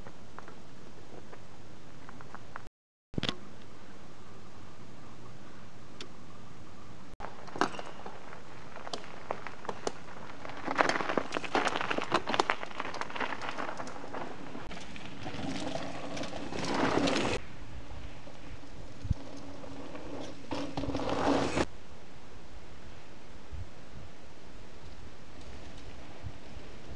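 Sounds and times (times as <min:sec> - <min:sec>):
footsteps on gravel: 0:07.2 - 0:15.3
rushing scraping noise: 0:13.0 - 0:21.7.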